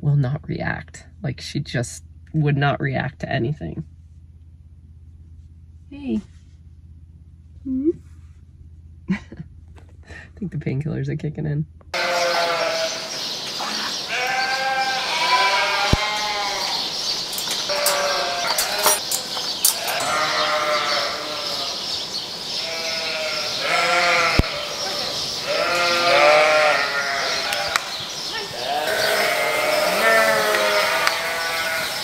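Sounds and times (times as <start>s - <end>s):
sheep and lambs bleating: 11.9s - 21.9s, 22.6s - 32.0s.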